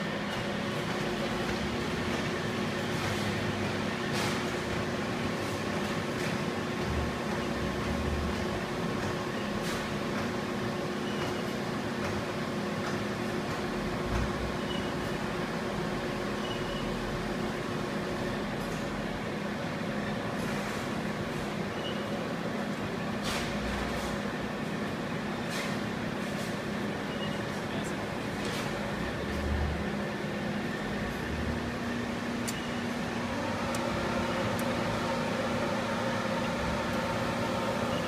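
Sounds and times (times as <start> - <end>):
machinery hum: 0.0 - 38.0.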